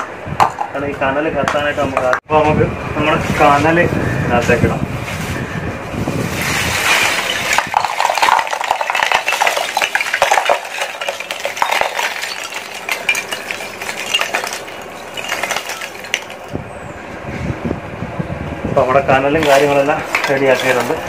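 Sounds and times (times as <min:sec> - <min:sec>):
charcoal lumps clattering: 0:06.0 - 0:16.6, 0:19.3 - 0:21.0.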